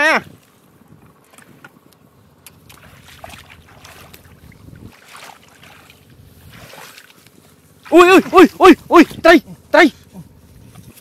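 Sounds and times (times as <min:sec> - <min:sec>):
wind rumble on microphone: 0:00.0 - 0:07.0, 0:08.2 - 0:11.0
hands splashing in muddy water: 0:02.5 - 0:08.3.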